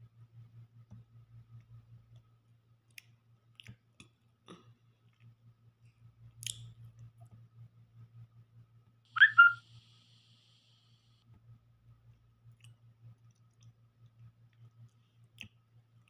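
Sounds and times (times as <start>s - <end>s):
low steady hum: 0.0s - 16.0s
faint chewing: 2.1s - 7.4s, 12.1s - 16.0s.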